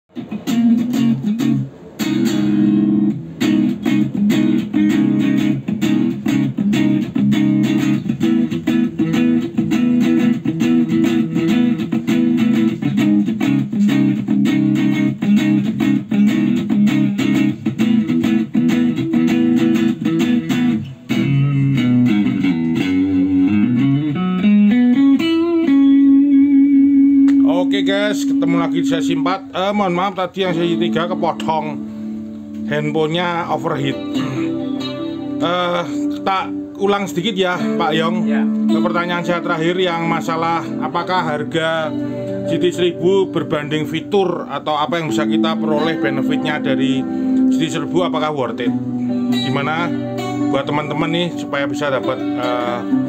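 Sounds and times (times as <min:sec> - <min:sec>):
electric guitar riff: 0:00.1 - 0:53.0
sliding bending guitar notes: 0:00.1 - 0:53.0.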